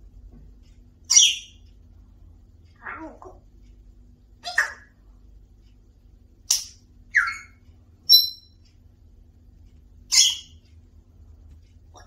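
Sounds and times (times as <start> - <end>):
parrot squawking: 1.1 - 1.6, 2.8 - 3.4, 4.4 - 5.0, 6.5 - 8.5, 10.1 - 10.5.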